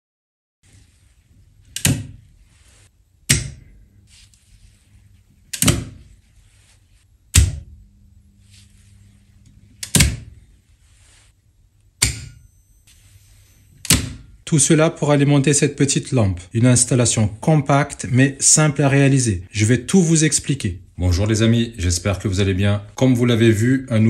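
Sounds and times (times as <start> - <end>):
faint low coil hum: 0.6 - 24.0
selector switch click: 1.8 - 2.1, 11.9 - 12.4.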